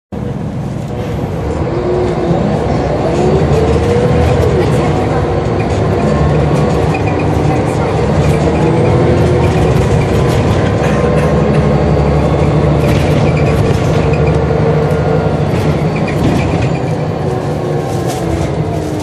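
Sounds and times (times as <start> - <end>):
bus diesel engine: 0.1 - 19.0
road noise: 0.1 - 19.0
interior rattles: 3.4 - 17.1.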